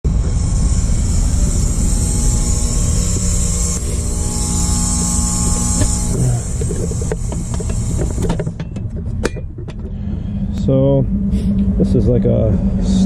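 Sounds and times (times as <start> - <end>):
mechanical hum: 0.0 - 13.0
constant high hiss: 0.1 - 8.6
low rumble: 0.1 - 13.0.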